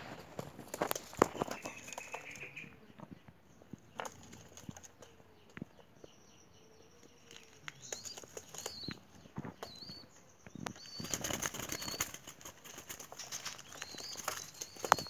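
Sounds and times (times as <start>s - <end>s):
doves flapping wings in cage: 10.7s - 15.0s.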